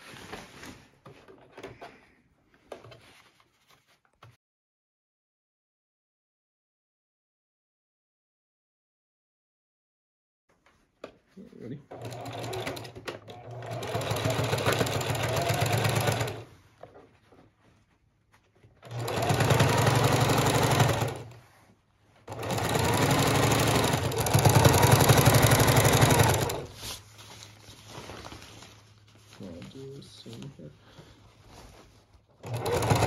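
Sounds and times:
sewing machine stitching: 11.9s - 16.6s, 18.8s - 21.4s, 22.2s - 26.8s, 32.4s - 33.0s.

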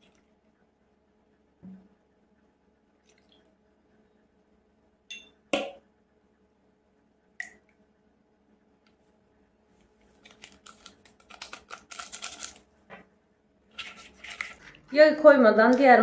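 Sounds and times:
glass clinking and set down: 5.1s - 5.8s
paper sachet crackling: 10.2s - 12.7s.

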